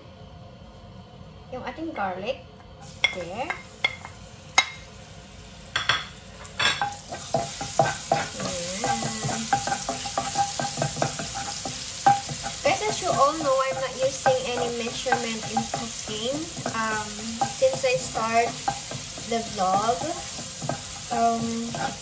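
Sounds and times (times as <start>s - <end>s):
garlic sizzling in hot oil: 2.8s - 22.0s
spatula scraping a pan: 6.8s - 22.0s.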